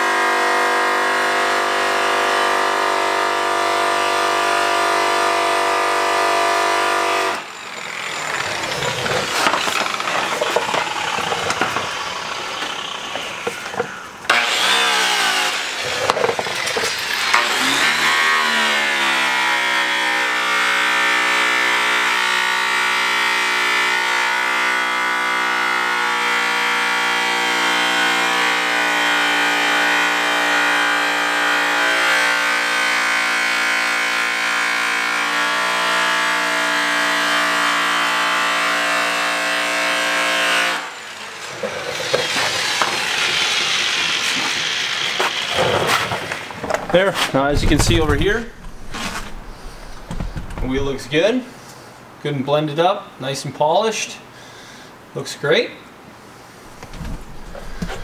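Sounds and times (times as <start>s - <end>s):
motor humming: 7.5s - 18.0s, 47.4s - 51.2s, 56.7s - 58.0s.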